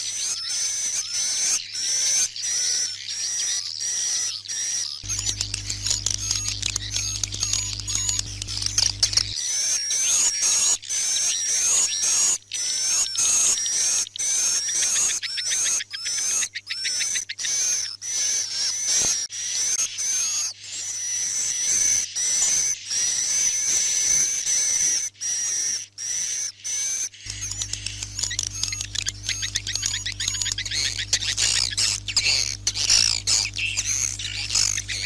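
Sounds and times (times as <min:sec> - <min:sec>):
recorded bird twittering: 0:00.0 - 0:35.0
steady low hum: 0:05.0 - 0:09.4, 0:27.3 - 0:35.0.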